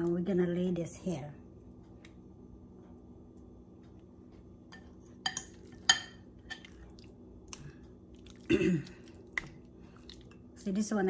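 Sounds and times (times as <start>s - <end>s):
dishes clinking: 4.7s - 6.8s.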